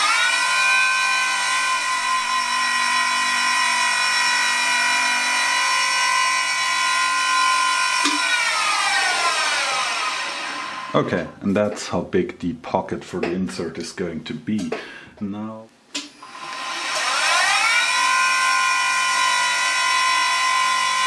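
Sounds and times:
machine spindle whine: 0.0 - 11.0, 16.2 - 21.0.

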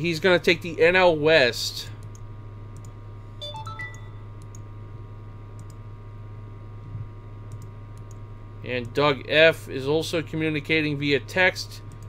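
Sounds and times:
low electrical hum: 0.0 - 12.0
electronic notification chime: 3.4 - 4.2
computer mouse clicks: 4.4 - 4.6, 5.6 - 5.8, 7.5 - 8.2.

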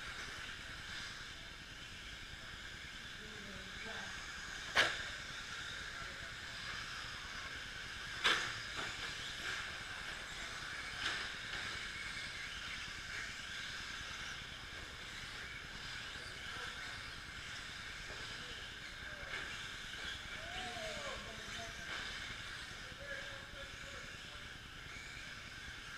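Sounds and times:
rc truck motors whining: 0.0 - 25.9.

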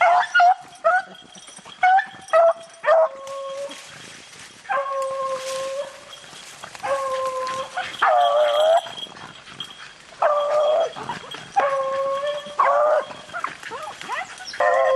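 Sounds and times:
dogs yelping: 0.0 - 4.1, 4.7 - 14.9
dog howling: 4.7 - 6.1, 6.8 - 9.1, 10.2 - 14.9.

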